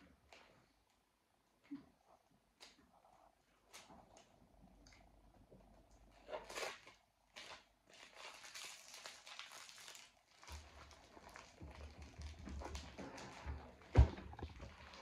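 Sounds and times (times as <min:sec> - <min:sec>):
plastic wrapping crinkling: 0:06.1 - 0:15.0.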